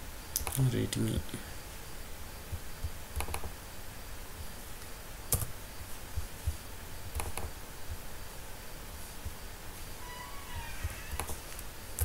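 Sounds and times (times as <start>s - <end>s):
computer mouse clicking: 0.4s - 0.6s, 3.2s - 3.5s, 7.2s - 7.6s, 11.1s - 11.4s.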